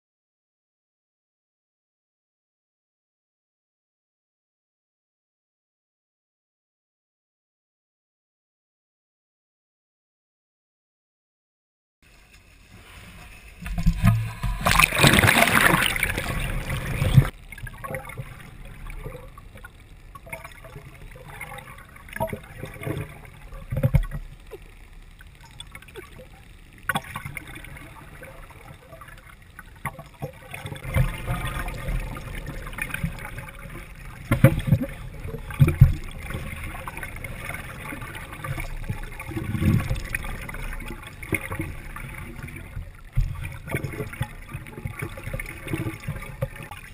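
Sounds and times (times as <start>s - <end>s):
muffled underwater sloshing: 12.1s - 46.9s
sea water splashing: 12.1s - 46.9s.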